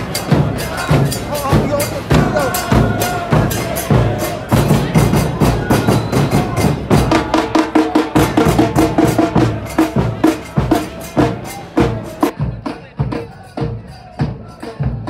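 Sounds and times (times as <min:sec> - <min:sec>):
fast steady drum beat: 0:00.0 - 0:15.0.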